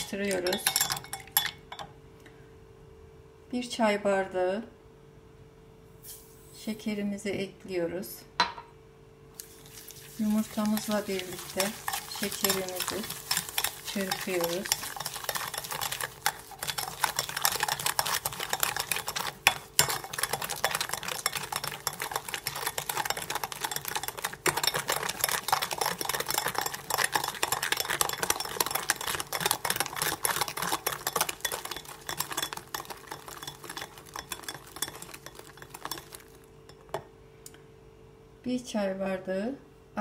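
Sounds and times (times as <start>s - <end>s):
whisk clicking against glass bowl: 0.0s - 1.8s, 10.3s - 37.0s.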